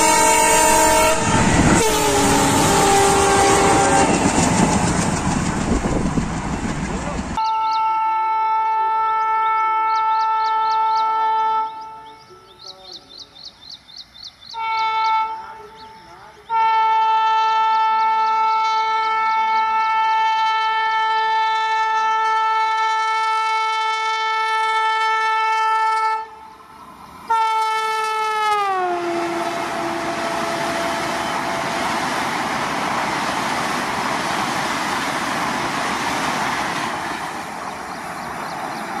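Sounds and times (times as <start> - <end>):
electric train horn: 0.0 - 4.6, 7.4 - 12.4, 14.5 - 26.5, 27.3 - 32.0
train rushing rumble: 0.0 - 7.4, 29.0 - 39.0.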